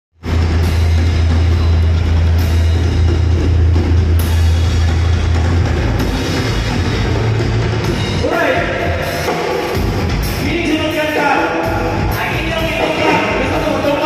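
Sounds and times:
live rock band playing: 0:11.7 - 0:14.0
low bass guitar line: 0:12.5 - 0:14.0.

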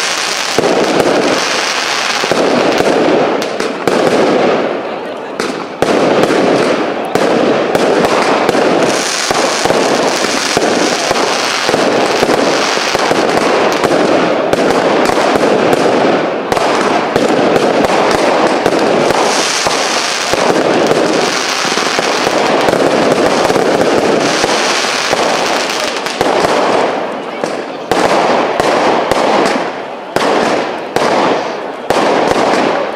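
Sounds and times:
high firework hiss: 0:00.0 - 0:04.6, 0:06.5 - 0:27.6
fireworks launching and bursting: 0:00.0 - 0:32.9.

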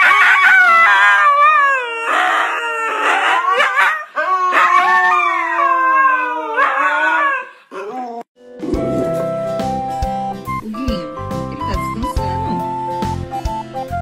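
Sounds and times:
dog howling: 0:00.0 - 0:08.3.

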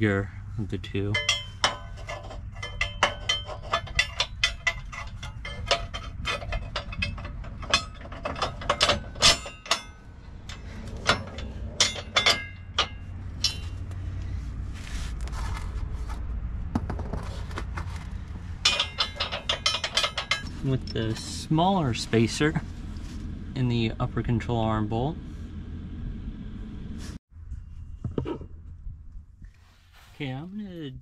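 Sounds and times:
metal hardware clicking: 0:01.1 - 0:14.0, 0:18.6 - 0:21.1.

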